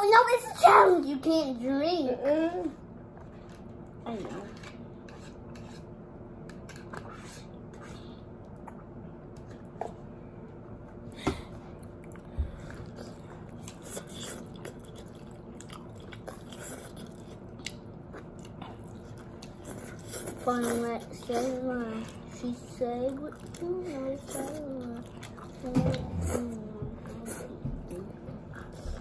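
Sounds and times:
person chewing noodles: 0:11.7 - 0:21.4, 0:23.0 - 0:29.0.

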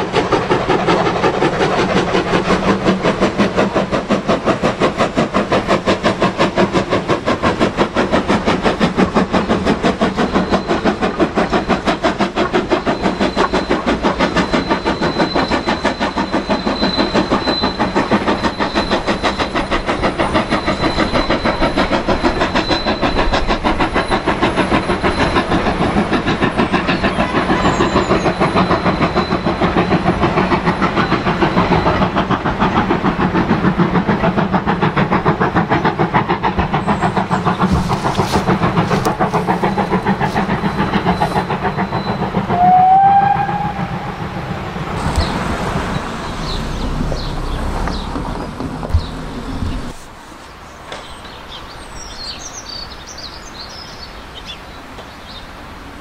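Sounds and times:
steam locomotive exhaust beat: 0:00.0 - 0:56.0
rising whistle-like tone: 0:12.6 - 0:25.8, 0:36.9 - 0:44.2.

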